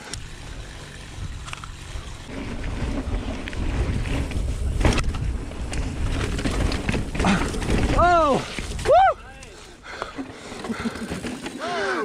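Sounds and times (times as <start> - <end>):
tyres rumbling over dirt: 0.0 - 12.0
wind buffeting microphone: 0.3 - 9.3.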